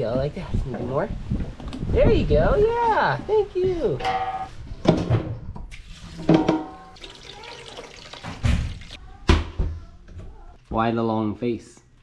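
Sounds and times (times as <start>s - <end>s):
tap water running into pot: 5.7s - 9.0s
heavy pot thunking down: 6.2s - 6.8s.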